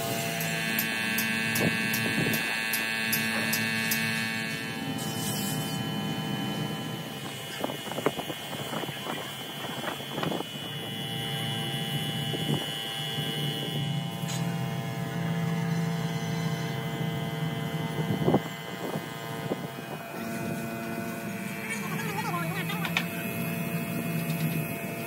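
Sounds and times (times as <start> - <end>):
mechanical hum with high whine: 0.0 - 25.0
motor drone: 0.0 - 25.0.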